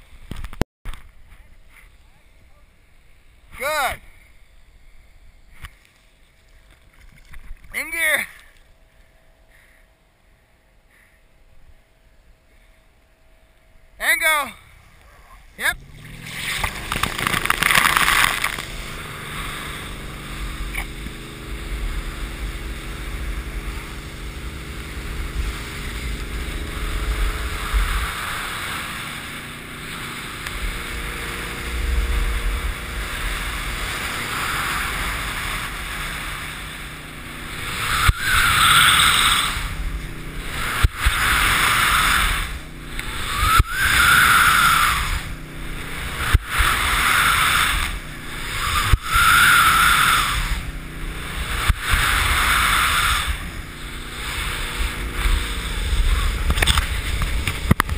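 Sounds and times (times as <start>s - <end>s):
boat engine humming: 1.1s - 57.9s
water rushing over camera: 15.6s - 57.9s
spray hissing from ski turns: 32.9s - 57.4s.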